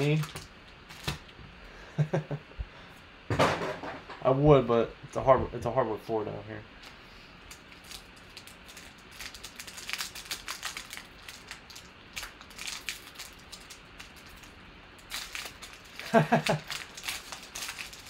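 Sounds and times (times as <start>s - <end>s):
foil wrapper crinkling: 0.0s - 1.3s, 7.5s - 18.0s.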